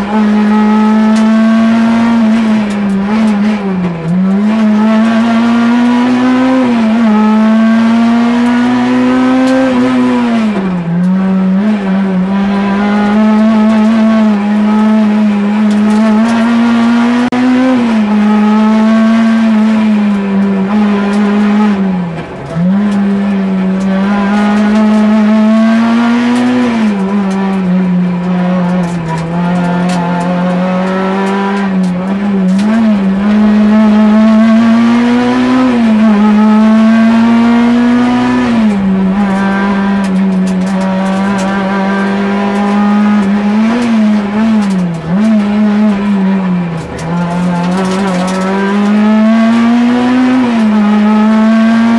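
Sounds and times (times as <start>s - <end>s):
car engine at high revs: 0.0s - 51.9s.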